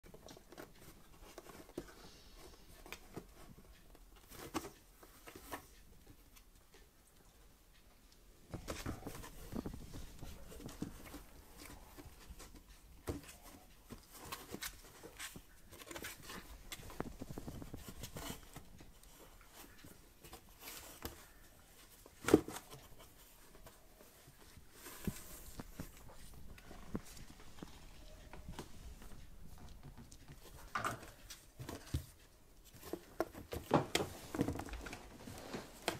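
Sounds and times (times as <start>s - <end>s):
kittens scratching cardboard box: 8.6s - 27.6s.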